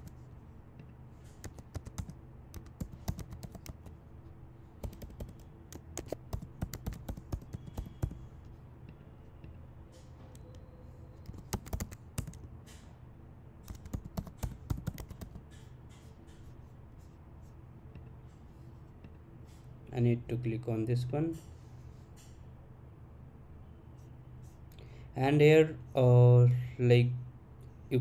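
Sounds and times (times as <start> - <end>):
keyboard typing: 1.3 - 4.0, 4.8 - 8.4, 11.2 - 12.5, 13.6 - 16.4.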